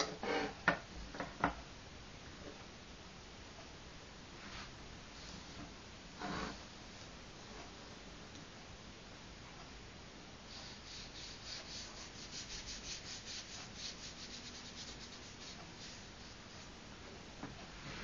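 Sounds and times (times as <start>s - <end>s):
brush scratching on paper: 10.5s - 16.7s.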